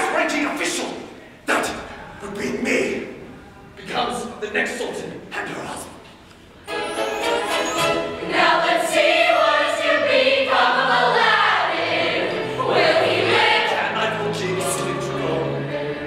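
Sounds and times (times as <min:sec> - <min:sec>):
recorded accompaniment: 0:06.6 - 0:16.0
group of performers singing: 0:08.0 - 0:16.0.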